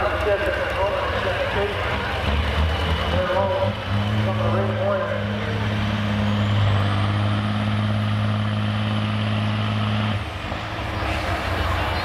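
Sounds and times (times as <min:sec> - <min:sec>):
diesel truck engine revving: 0:00.0 - 0:12.0.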